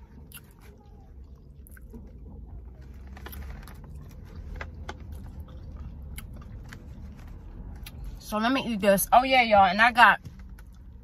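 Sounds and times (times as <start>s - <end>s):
low steady rumble: 0.0s - 11.0s
eating and chewing clicks: 2.9s - 7.1s.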